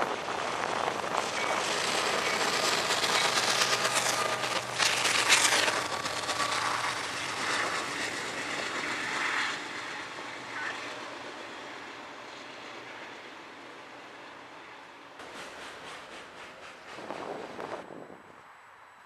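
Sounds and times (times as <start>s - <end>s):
freight train rolling past: 0.0s - 19.0s
train cars rolling on rails: 0.0s - 19.0s.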